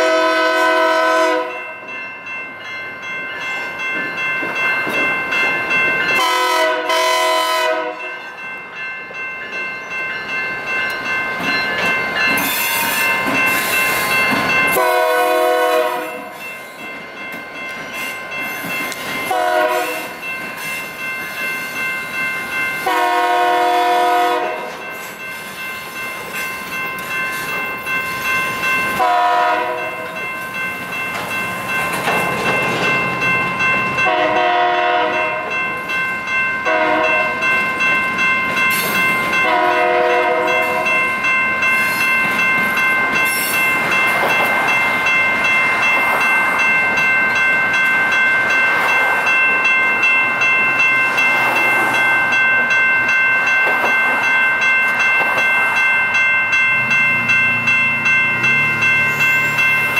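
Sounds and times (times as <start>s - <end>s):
locomotive air horn blasts: 0.0s - 1.6s, 6.2s - 8.1s, 14.8s - 16.4s, 19.3s - 20.1s, 22.9s - 24.7s, 29.0s - 29.9s, 34.0s - 35.4s, 36.7s - 37.3s, 39.4s - 40.9s
crossing signal bells ringing: 0.0s - 59.9s
train wheels clattering on rails: 3.3s - 59.9s.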